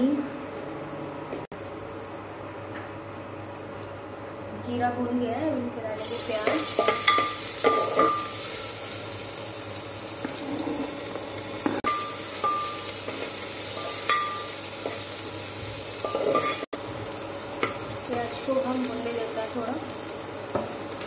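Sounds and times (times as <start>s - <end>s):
onions sizzling in a pan: 3.1s - 21.0s
spoon clinking against pan: 6.4s - 8.3s, 11.9s - 13.2s, 13.8s - 15.0s.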